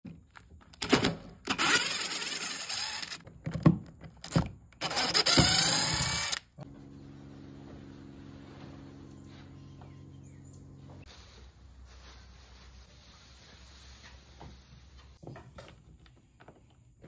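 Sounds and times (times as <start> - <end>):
cordless drill running: 1.5 - 3.2, 4.8 - 6.5.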